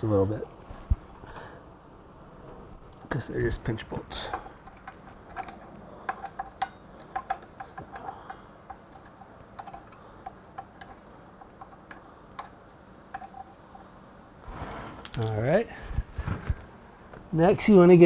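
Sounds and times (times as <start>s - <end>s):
allen key metallic clicks: 4.2s - 13.7s.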